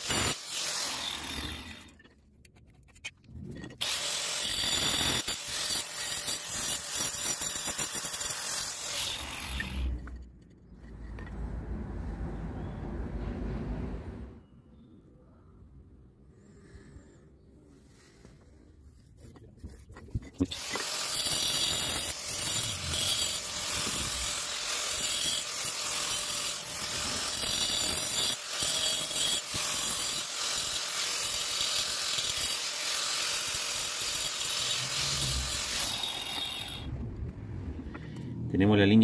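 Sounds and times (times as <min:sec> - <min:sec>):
angle grinder cutting brick: 0:00.0 - 0:02.1, 0:03.6 - 0:11.3, 0:19.3 - 0:36.9.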